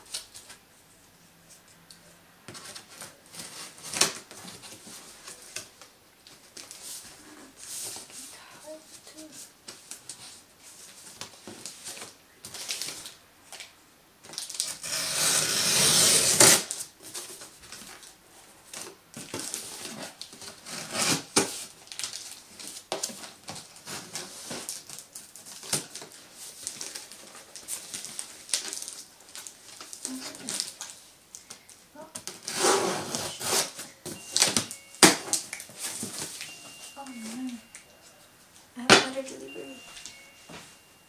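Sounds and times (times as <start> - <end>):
scissors cutting cardboard: 14.6 - 16.7, 32.3 - 33.8.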